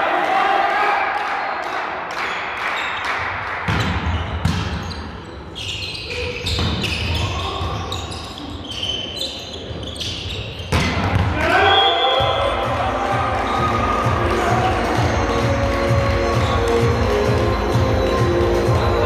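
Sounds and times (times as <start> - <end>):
shoe squeaks on court: 3.7 - 12.4.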